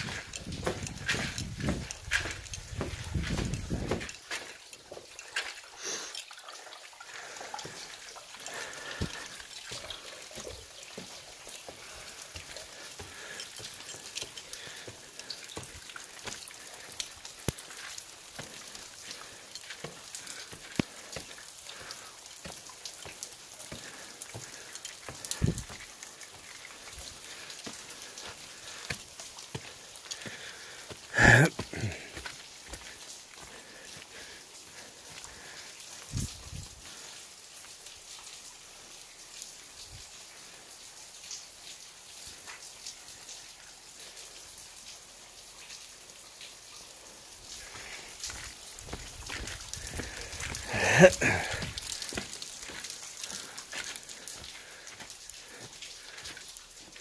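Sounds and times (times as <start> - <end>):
footsteps on wooden stairs: 0.0 - 5.1, 22.4 - 25.9, 48.3 - 52.8
water dripping and pattering: 0.0 - 57.0.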